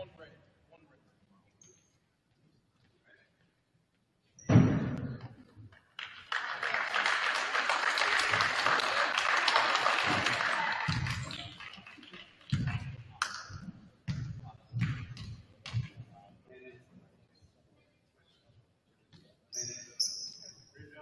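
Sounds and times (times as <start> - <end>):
loud thump: 4.4 - 5.4
crowd applauding: 6.0 - 12.9.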